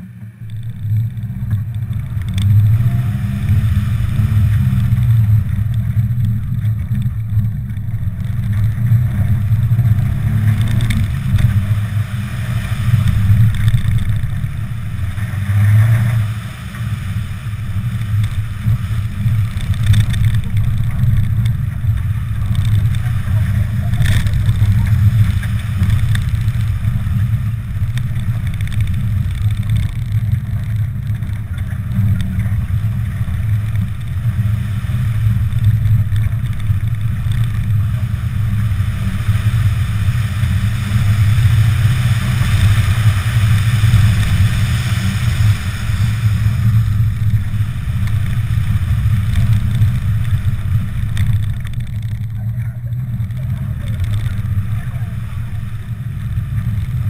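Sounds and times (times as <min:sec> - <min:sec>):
car engine droning: 0:00.0 - 0:57.0.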